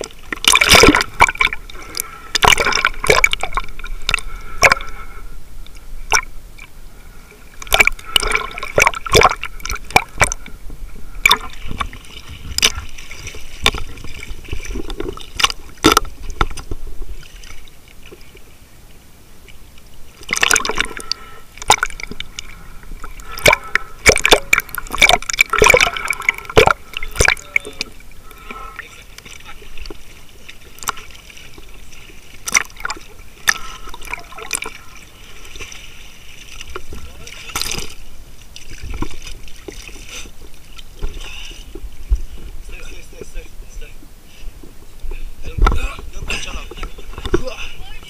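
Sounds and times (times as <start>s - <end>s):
water splashing and bubbling: 0.0s - 48.0s.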